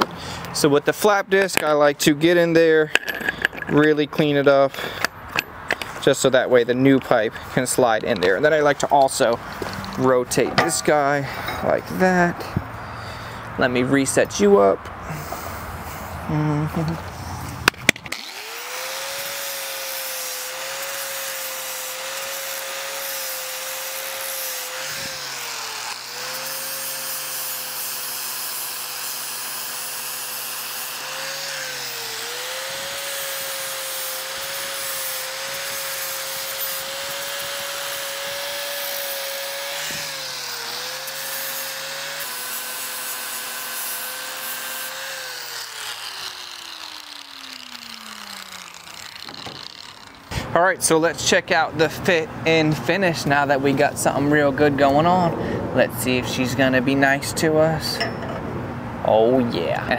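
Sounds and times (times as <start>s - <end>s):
angle grinder grinding steel: 0.0s - 13.3s, 16.8s - 52.0s, 57.8s - 58.4s.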